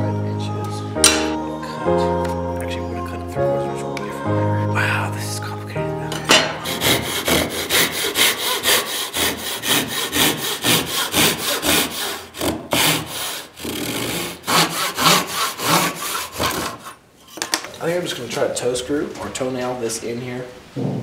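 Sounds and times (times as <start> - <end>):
hand saw cutting wood: 6.6 - 17.0.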